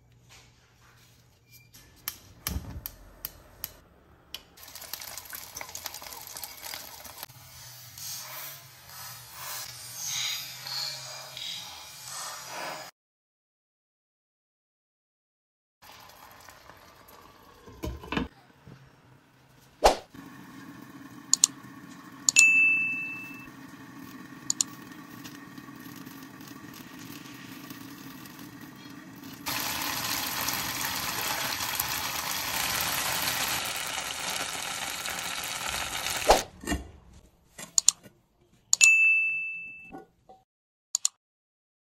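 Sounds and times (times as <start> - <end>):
dumplings sizzling in pan: 4.6 - 7.3, 23.6 - 36.4.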